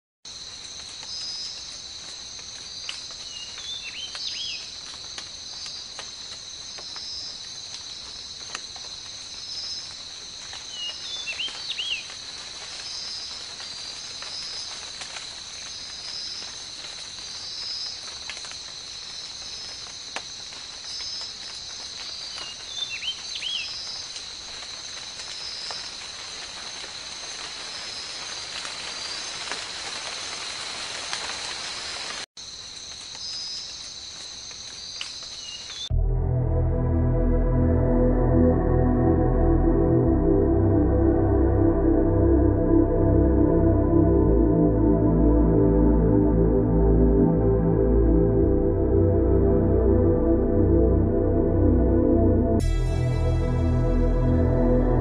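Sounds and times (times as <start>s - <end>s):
insects droning: 0.3s - 35.9s.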